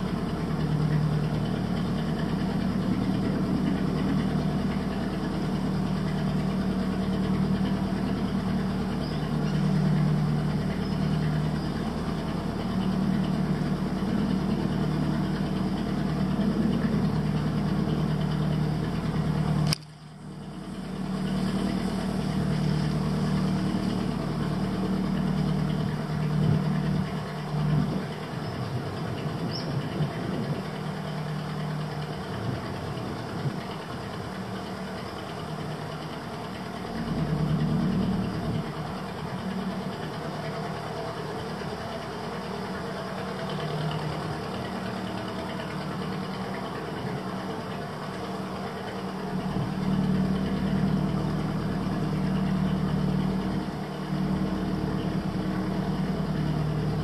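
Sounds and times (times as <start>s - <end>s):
motorboat engine running: 0.0s - 57.0s
sharp click: 19.6s - 20.0s.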